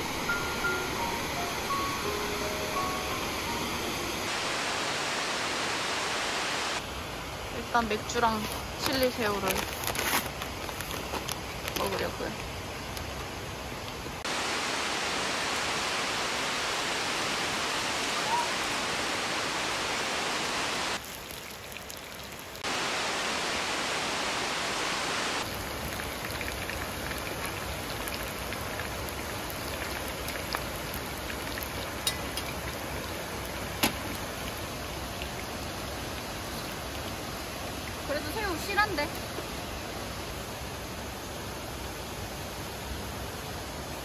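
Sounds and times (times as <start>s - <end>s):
stream and waterfall rushing: 0.0s - 8.8s, 11.8s - 21.0s, 22.6s - 44.0s
shrimp sizzling in hot oil: 25.4s - 36.8s.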